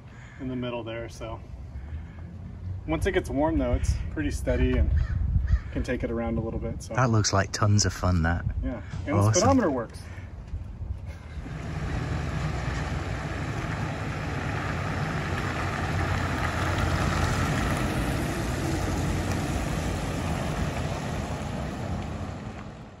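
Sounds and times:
van engine and tyres running: 0:10.3 - 0:23.0.

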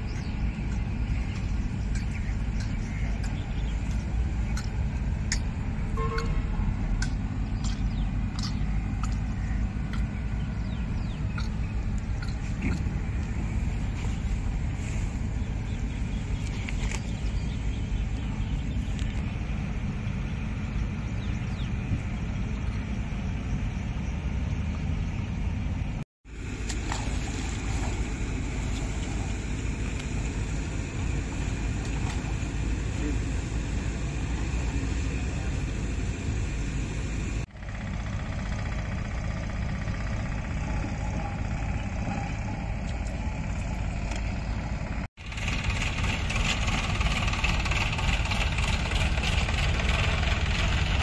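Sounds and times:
steady low rumble: 0:00.0 - 0:51.0.

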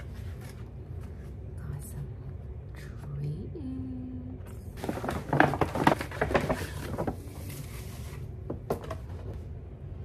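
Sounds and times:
paperboard box rustling and crinkling: 0:04.8 - 0:09.4.

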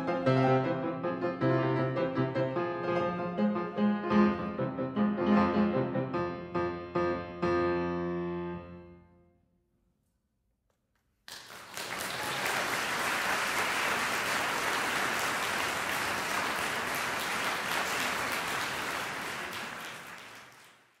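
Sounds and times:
audience applauding: 0:11.2 - 0:21.0.

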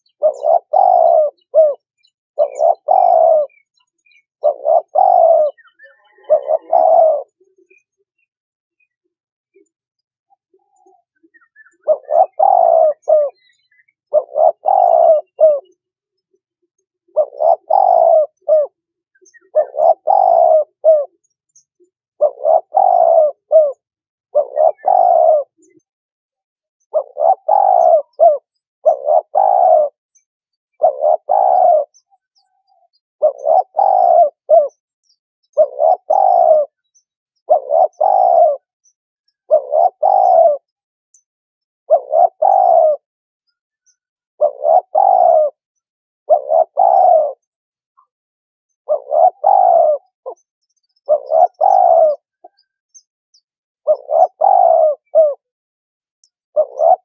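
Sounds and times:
dove cooing: 0:00.0 - 0:07.9, 0:09.5 - 0:15.8, 0:17.0 - 0:21.3, 0:22.1 - 0:25.8, 0:26.9 - 0:30.0, 0:30.7 - 0:34.8, 0:35.5 - 0:38.8, 0:39.4 - 0:40.8, 0:41.9 - 0:43.1, 0:44.4 - 0:48.1, 0:48.9 - 0:52.7, 0:53.8 - 0:55.5, 0:56.5 - 0:57.0.

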